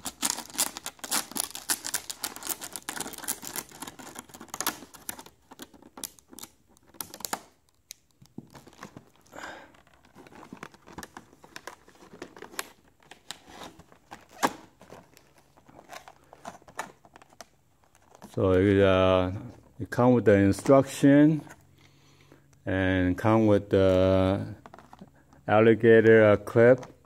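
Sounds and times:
plastic packaging crinkling: 0.0 - 18.4.

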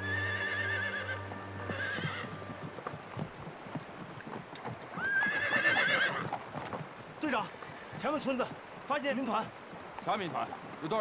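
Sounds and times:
horse whinnying: 0.0 - 2.4, 4.9 - 6.4
background music: 0.0 - 3.3
hooves clopping: 0.0 - 11.0.

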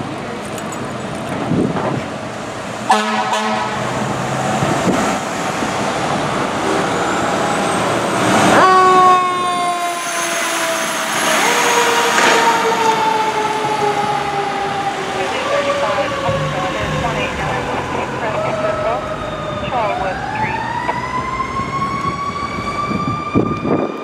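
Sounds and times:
traffic noise: 0.0 - 24.0
fire engine horn blast: 2.9 - 4.1, 8.5 - 20.8
fire engine siren: 2.9 - 24.0.

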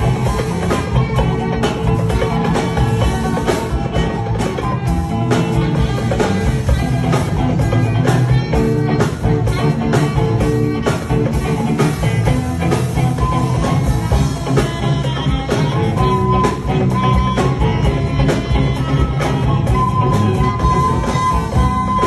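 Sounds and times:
drum kit beat: 0.0 - 22.0
electric guitars: 0.0 - 22.0.

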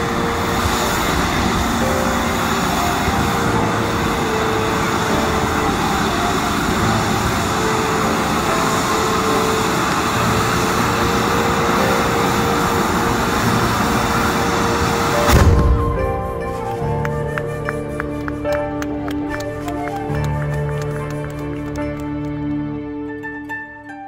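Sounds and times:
firework spraying sparks roaring: 0.0 - 17.3.

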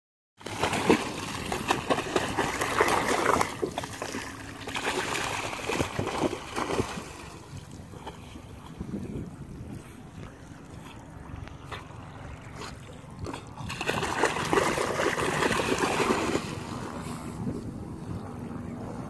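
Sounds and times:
water washing: 0.4 - 8.3
dog splashing through water: 0.4 - 8.8, 10.6 - 17.0.

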